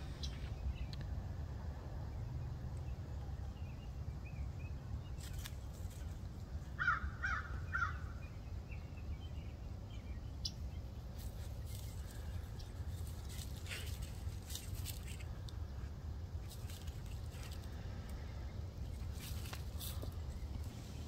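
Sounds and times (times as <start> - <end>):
small birds chirping: 0.0 - 1.2, 2.1 - 21.0
steady low rumble: 0.0 - 21.0.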